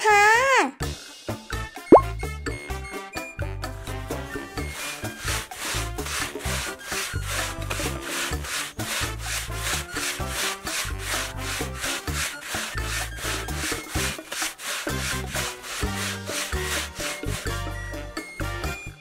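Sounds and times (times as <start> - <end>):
background music: 0.0 - 19.0
ice block scraping over blade: 4.5 - 17.8.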